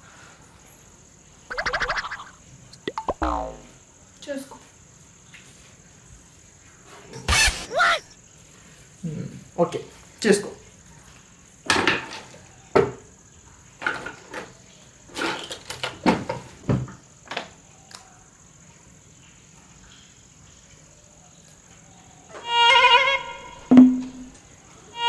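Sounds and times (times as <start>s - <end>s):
wavering musical tone: 1.5s - 3.7s, 22.4s - 24.4s
low blip: 2.8s - 3.7s.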